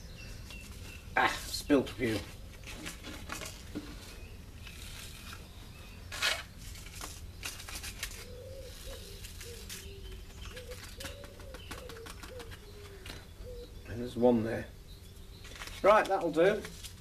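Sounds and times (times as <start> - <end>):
paper seed packet rustling: 0.6 - 13.2, 15.4 - 17.0
pigeon cooing: 8.1 - 13.8.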